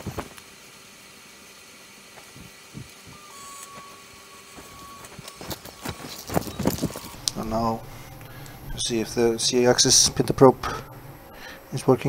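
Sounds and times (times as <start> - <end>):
printer mechanical hum: 0.6 - 12.0
stepper motor high whine: 2.8 - 12.0.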